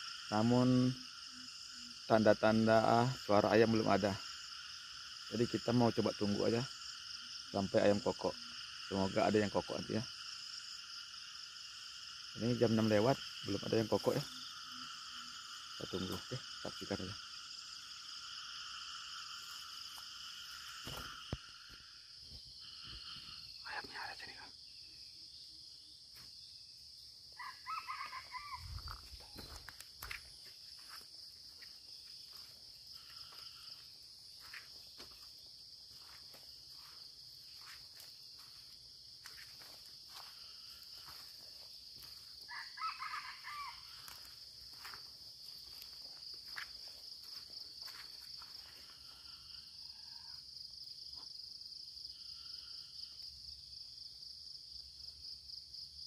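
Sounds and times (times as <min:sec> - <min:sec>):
high insect drone: 0:00.0 - 0:56.0
rooster crowing: 0:27.4 - 0:29.0, 0:42.5 - 0:44.3.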